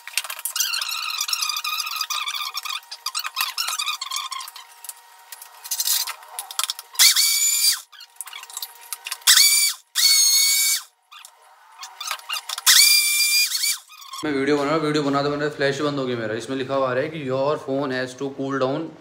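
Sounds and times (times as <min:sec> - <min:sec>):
mixer grinder motor whining: 0:00.0 - 0:05.0, 0:05.6 - 0:14.2.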